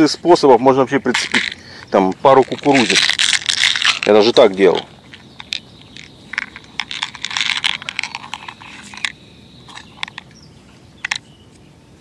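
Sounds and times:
plastic box clicking and rattling: 2.3 - 9.1.

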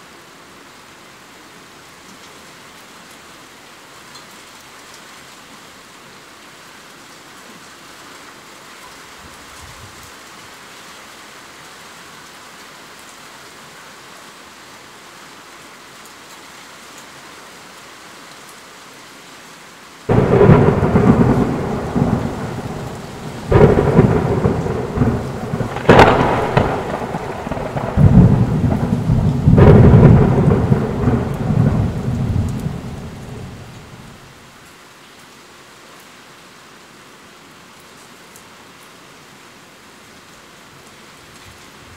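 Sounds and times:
steady rain: 0.0 - 41.9
thunder: 20.1 - 34.2.

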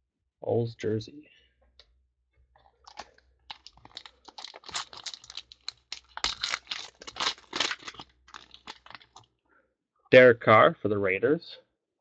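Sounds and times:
foil wrapper tearing and crinkling: 2.8 - 9.2.

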